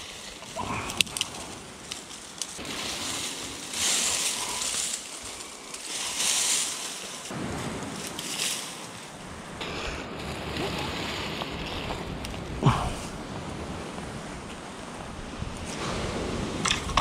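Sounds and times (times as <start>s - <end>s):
dry twigs rustling and crackling: 0.0s - 9.6s, 11.1s - 12.6s
surf on the shore: 0.0s - 17.0s
wind: 0.0s - 17.0s.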